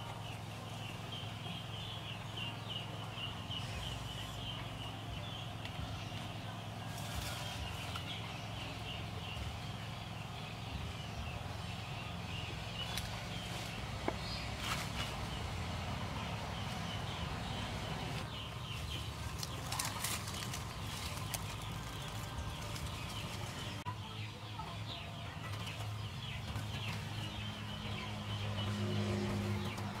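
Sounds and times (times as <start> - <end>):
low steady rumble: 0.0 - 30.0
leaves crackling: 5.6 - 9.2, 12.5 - 23.8.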